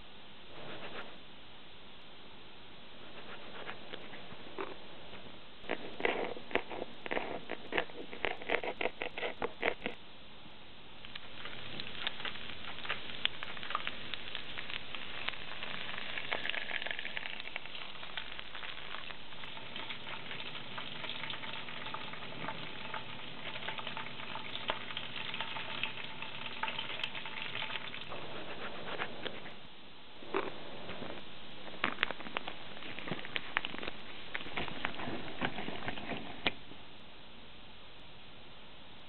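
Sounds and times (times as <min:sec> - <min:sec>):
oil popping and crackling: 0:05.6 - 0:10.0, 0:11.0 - 0:29.4, 0:31.7 - 0:36.6
garlic and ginger sizzling in oil: 0:11.1 - 0:28.2.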